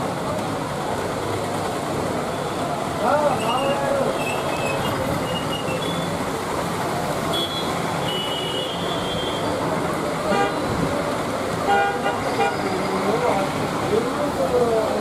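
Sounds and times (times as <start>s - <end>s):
vehicles passing on wet road: 0.0s - 15.0s.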